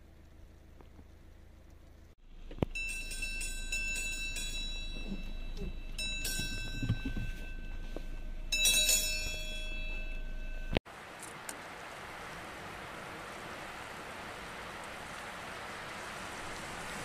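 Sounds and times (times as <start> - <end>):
carriage bells ringing: 2.7 - 10.8.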